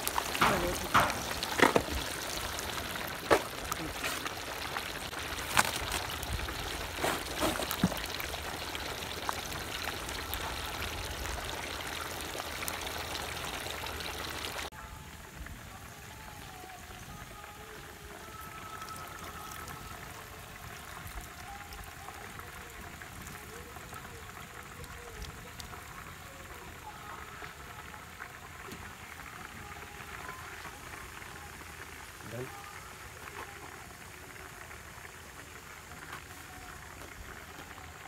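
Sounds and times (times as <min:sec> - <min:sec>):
oil sizzling: 0:00.0 - 0:14.7.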